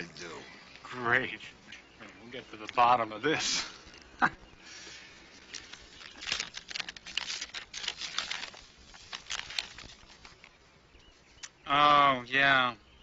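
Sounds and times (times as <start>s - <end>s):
paper rustling and crinkling: 5.4s - 10.6s.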